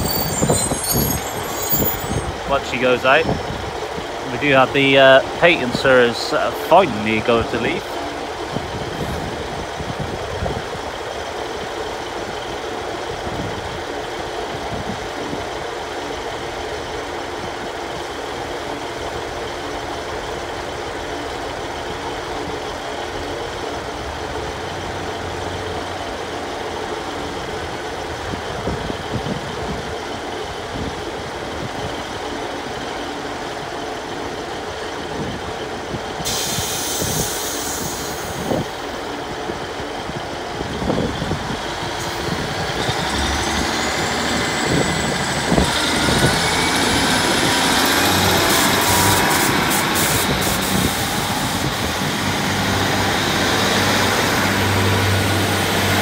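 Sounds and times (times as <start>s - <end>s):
rising train whine: 0.0s - 56.0s
train diesel engines running: 0.0s - 56.0s
air hiss: 36.3s - 38.6s.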